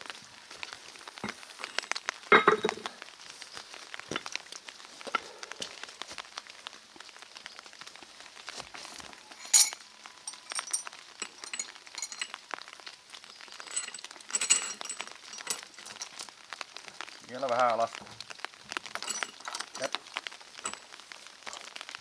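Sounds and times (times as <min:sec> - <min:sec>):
chain and weight plates rattling: 0:01.2 - 0:02.9, 0:09.4 - 0:12.7, 0:13.5 - 0:16.3, 0:18.7 - 0:21.9
ringing metallic clanks: 0:02.3 - 0:02.8, 0:09.4 - 0:12.4.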